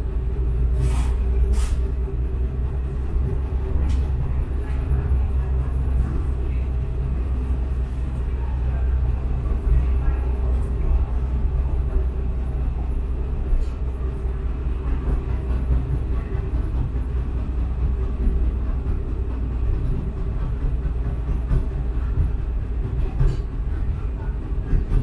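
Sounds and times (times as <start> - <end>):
tram rumbling on track: 0.0 - 25.0.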